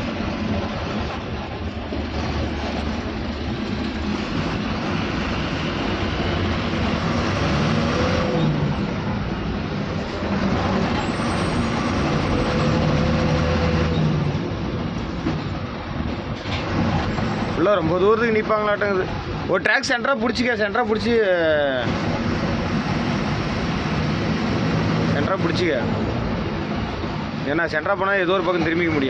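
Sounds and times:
diesel lorry engine rumble: 0:00.0 - 0:29.0
road and cab noise: 0:00.0 - 0:29.0.

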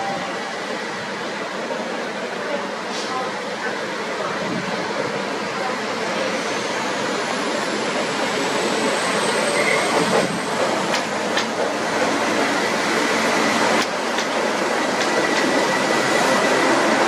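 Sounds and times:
diesel locomotives passing: 0:00.0 - 0:17.0
rail noise: 0:00.0 - 0:17.0.

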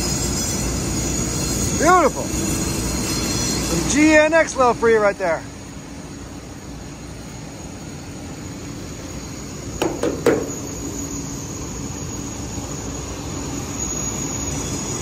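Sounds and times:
jet engine idling: 0:00.0 - 0:15.0
sharp knocks: 0:09.8 - 0:10.7.

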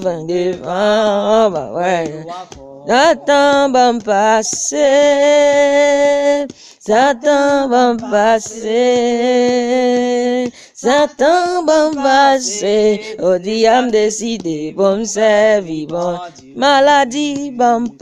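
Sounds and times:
person singing a prayer chorus: 0:00.0 - 0:18.0.

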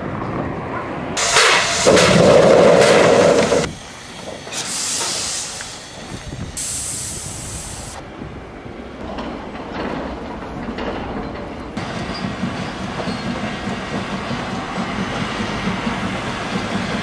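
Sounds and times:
steam locomotive hissing: 0:01.2 - 0:08.1, 0:11.8 - 0:17.0.

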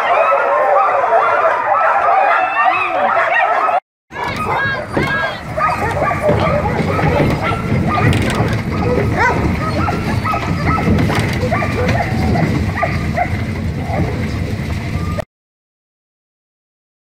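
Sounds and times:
dogs yipping and barking: 0:00.0 - 0:15.2
cart rolling on gravel: 0:04.1 - 0:15.2.

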